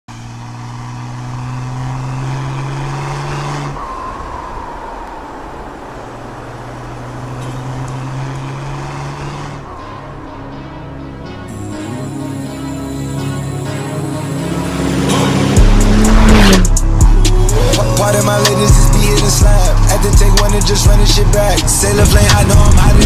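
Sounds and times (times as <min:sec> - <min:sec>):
diesel engine droning: 0:00.0 - 0:23.0.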